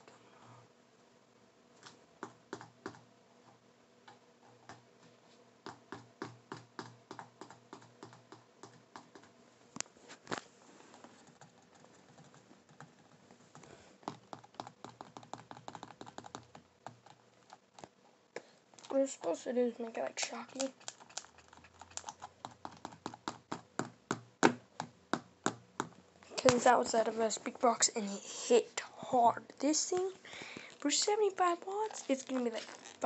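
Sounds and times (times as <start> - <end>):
hands handling objects clicking: 20.2 - 23.6.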